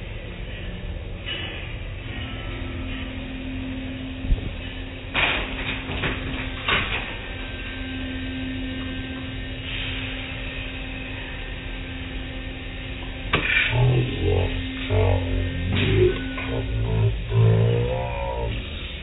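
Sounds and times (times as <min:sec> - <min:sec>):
car wash machinery hum: 0:00.0 - 0:19.0
music with bass and guitar: 0:12.3 - 0:19.0.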